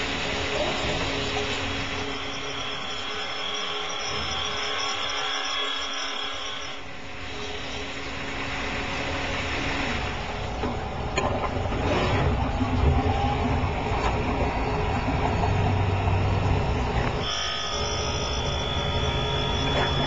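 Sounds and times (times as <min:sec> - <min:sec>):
grinder whine: 0:00.0 - 0:10.6, 0:15.8 - 0:20.0
low machine rumble: 0:06.9 - 0:17.2.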